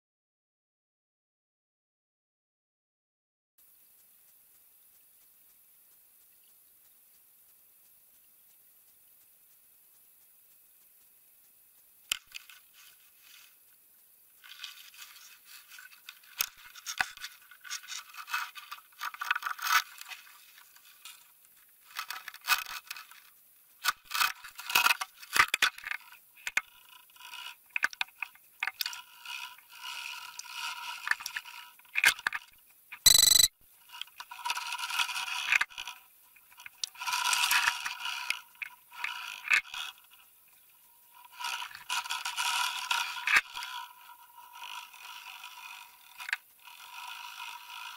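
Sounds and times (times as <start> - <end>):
underwater scraping and rattling: 14.4 - 21.2, 41.2 - 47.9.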